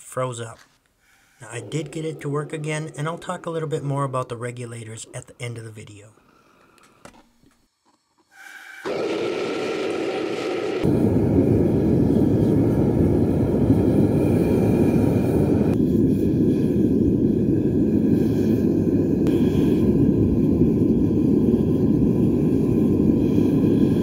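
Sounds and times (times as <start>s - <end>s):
furnace burner rushing: 8.4s - 24.0s.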